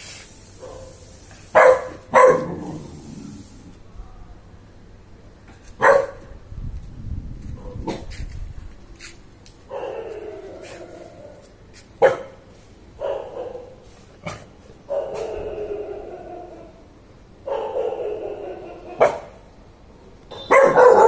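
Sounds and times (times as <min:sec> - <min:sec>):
dog barking: 0:00.6 - 0:02.7, 0:05.8 - 0:06.3, 0:09.7 - 0:10.8, 0:12.0 - 0:12.4, 0:13.0 - 0:16.2, 0:17.4 - 0:19.4, 0:20.5 - 0:21.0.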